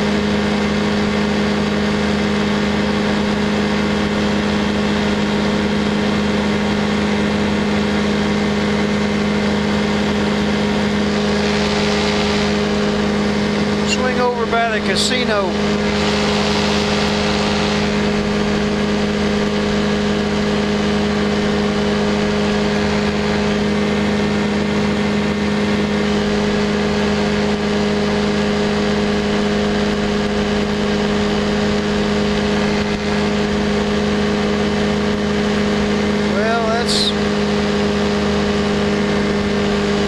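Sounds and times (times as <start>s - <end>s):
light aircraft engine droning: 0.0s - 40.0s
rushing air: 9.4s - 14.1s, 15.1s - 37.6s.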